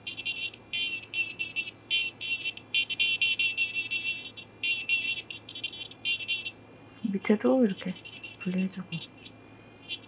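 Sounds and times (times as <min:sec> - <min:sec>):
electric nail drill whining: 0:00.0 - 0:06.6.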